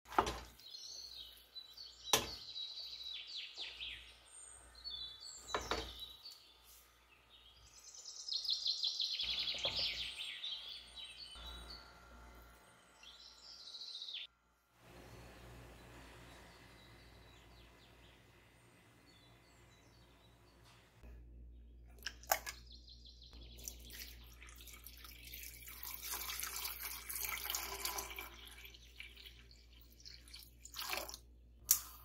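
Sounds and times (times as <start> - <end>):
birds singing and chirping: 0.6 - 11.8, 12.9 - 14.3.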